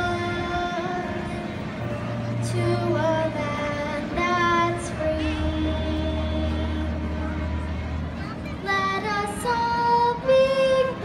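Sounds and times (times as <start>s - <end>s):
girl singing into a microphone: 0.0s - 1.3s, 2.4s - 7.4s, 8.6s - 11.0s.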